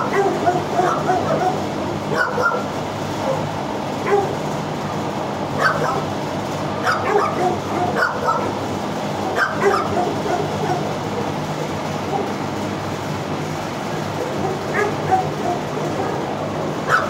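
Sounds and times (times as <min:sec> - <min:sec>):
dog barking and yipping: 0:00.0 - 0:04.4, 0:05.6 - 0:06.1, 0:06.8 - 0:08.6, 0:09.3 - 0:11.3, 0:12.1 - 0:12.4, 0:14.2 - 0:17.0.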